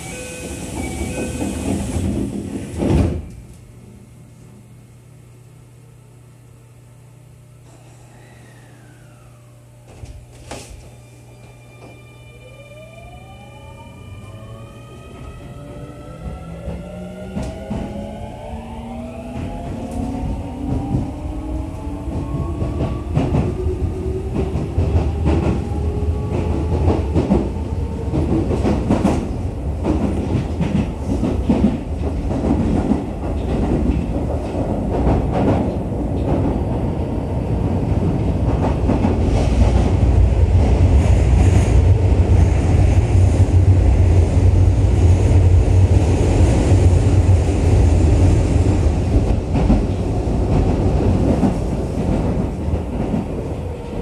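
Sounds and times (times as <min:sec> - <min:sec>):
low train rumble: 0:00.0 - 0:54.0.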